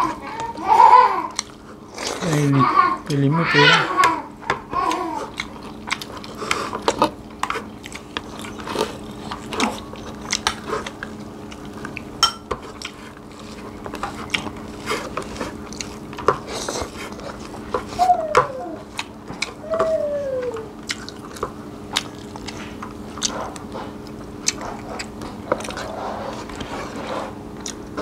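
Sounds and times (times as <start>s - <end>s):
chewing and biting food: 1.3s - 2.4s, 4.7s - 20.0s, 20.6s - 28.0s.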